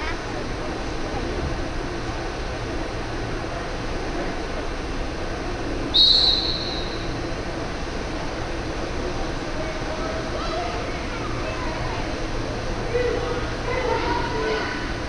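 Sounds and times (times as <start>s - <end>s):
pool hall background noise: 0.0s - 15.0s
referee's whistle blast: 5.9s - 7.0s.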